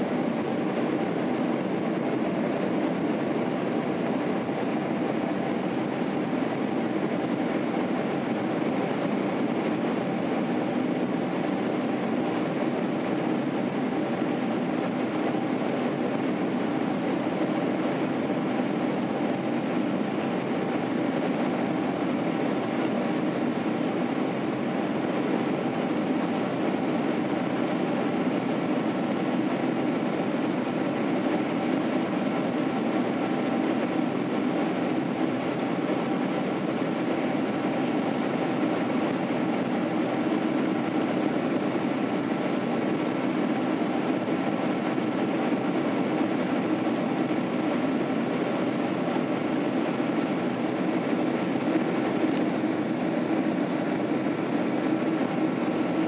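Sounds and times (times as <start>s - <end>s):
airliner cabin engine drone: 0.0s - 56.0s.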